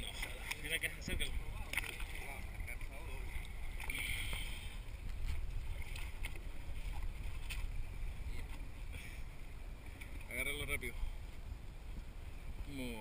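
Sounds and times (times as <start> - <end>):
wind and water rumble: 0.0 - 13.0.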